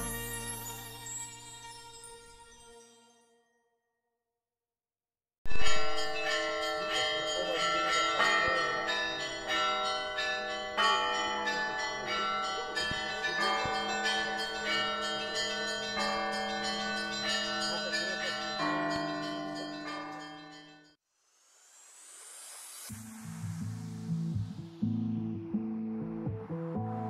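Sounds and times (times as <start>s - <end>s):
church bells ringing: 5.5s - 21.0s.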